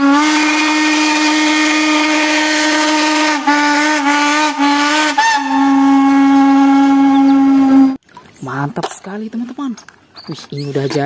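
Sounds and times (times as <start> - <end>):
steam train whistle: 0.0 - 8.0.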